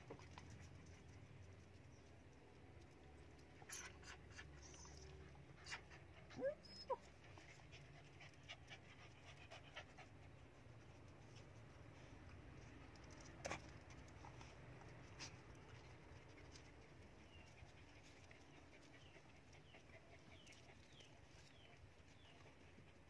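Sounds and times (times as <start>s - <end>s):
small dog panting: 3.4s - 23.0s
dog whimpers: 5.6s - 7.1s.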